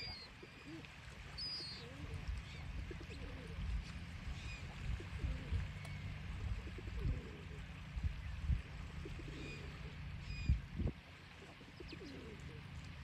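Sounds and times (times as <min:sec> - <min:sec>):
faint bird calls: 0:00.0 - 0:03.6, 0:04.3 - 0:10.7
wind and surf rumble: 0:01.6 - 0:11.2.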